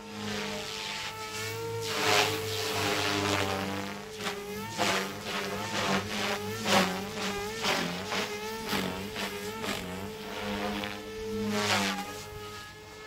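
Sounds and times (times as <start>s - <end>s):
helicopter motor and rotor whine: 0.0s - 13.0s.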